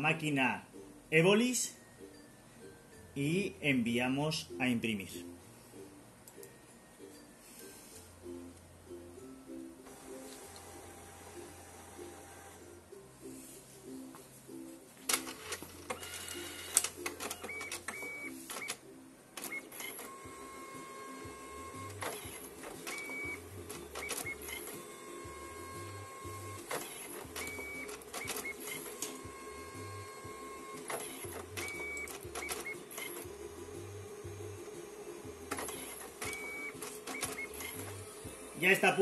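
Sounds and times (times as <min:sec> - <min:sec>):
card printer motor: 0:15.2 - 0:18.8, 0:19.4 - 0:38.3
printer sharp clicks: 0:21.7 - 0:24.8, 0:26.6 - 0:29.2, 0:30.7 - 0:33.3, 0:35.5 - 0:37.9.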